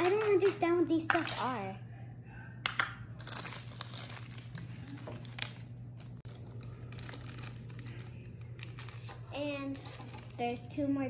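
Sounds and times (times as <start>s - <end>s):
plastic wrapper crinkling: 3.2s - 10.6s.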